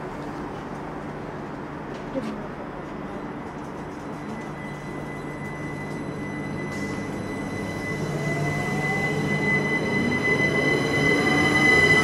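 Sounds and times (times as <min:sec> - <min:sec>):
rail noise: 0:00.0 - 0:12.0
electric train traction whine: 0:03.9 - 0:12.0
steady high tone: 0:04.4 - 0:12.0.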